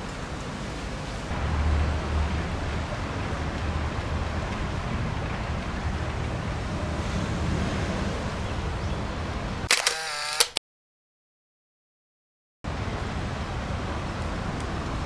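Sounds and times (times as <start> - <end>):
distant traffic rumble: 0.0 - 9.7, 12.7 - 15.0.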